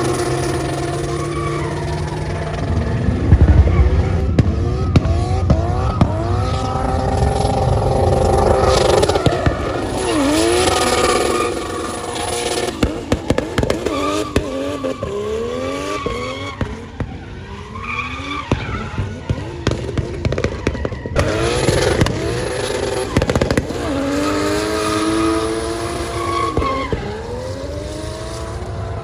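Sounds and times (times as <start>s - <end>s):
car engine revving hard: 0.0s - 17.0s, 21.2s - 29.0s
sharp cracks: 1.6s - 15.2s.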